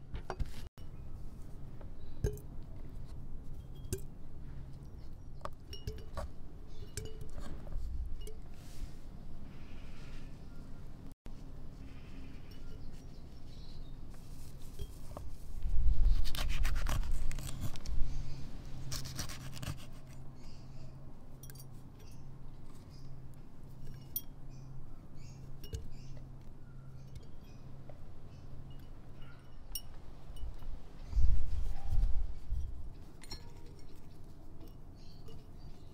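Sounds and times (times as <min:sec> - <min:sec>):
glass clinking: 0:05.6 - 0:07.4.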